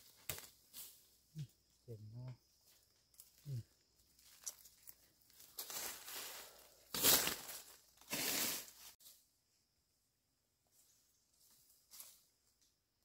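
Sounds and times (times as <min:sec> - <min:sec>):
dry leaves crunching and scraping: 0:04.2 - 0:09.0.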